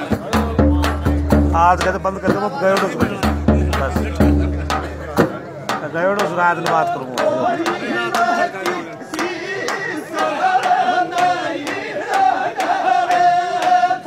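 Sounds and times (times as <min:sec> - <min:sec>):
frame drum beating: 0:00.0 - 0:09.8
men singing folk song: 0:06.2 - 0:14.0.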